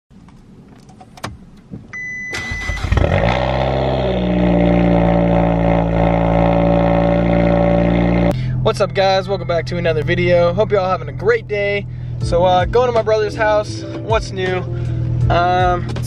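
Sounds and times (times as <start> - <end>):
car engine starting and idling: 0.2 - 16.0
short high beep: 2.0 - 2.9.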